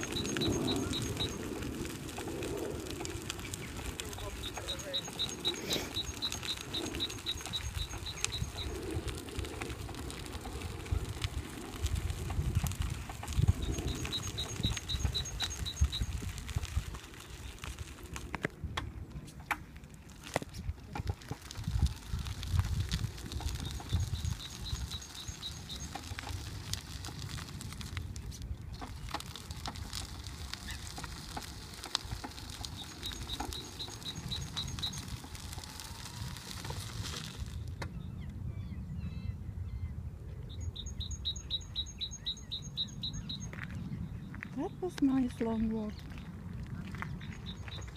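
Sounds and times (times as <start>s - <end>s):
rapid high chirps: 0.0s - 1.5s, 4.1s - 8.8s, 13.5s - 16.1s
wheelchair rolling on gravel: 0.0s - 37.9s, 40.9s - 47.9s
gravel crunches and clicks: 0.0s - 38.4s, 40.5s - 47.9s.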